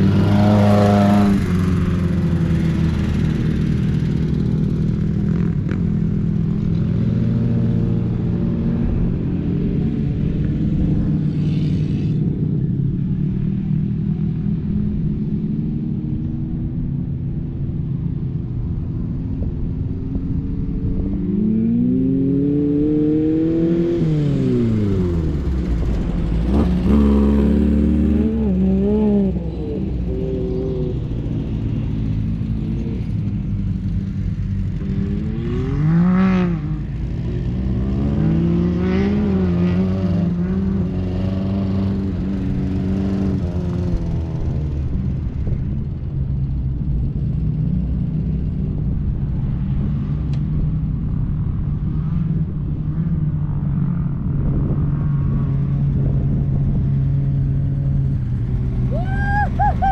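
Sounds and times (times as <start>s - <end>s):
engine revving: 0.0s - 8.2s, 21.0s - 45.6s.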